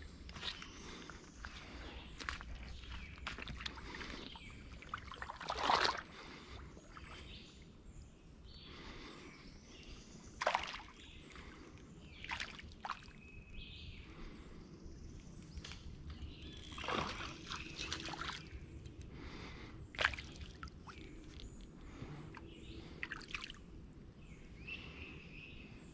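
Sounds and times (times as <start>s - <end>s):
footsteps sloshing through water: 0.1s - 7.4s, 10.4s - 13.3s, 16.4s - 21.7s, 22.3s - 23.7s
water swishes: 0.4s - 7.8s, 10.3s - 13.2s, 16.4s - 23.8s
small splashes and knocks: 2.2s - 6.1s, 10.4s - 11.0s, 12.2s - 13.2s, 16.4s - 19.0s, 19.9s - 21.5s, 23.0s - 23.6s.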